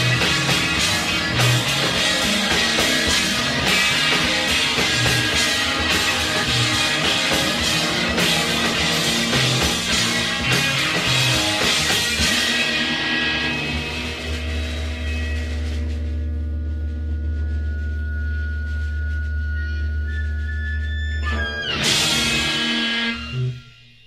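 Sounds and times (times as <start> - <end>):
drum kit: 0.0 - 20.5, 21.2 - 23.7
electric guitar: 0.0 - 23.9.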